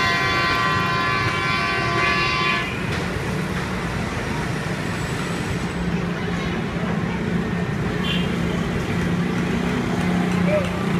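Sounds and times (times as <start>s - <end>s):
horn blast: 0.0s - 2.8s
busy street traffic hum: 0.0s - 10.9s.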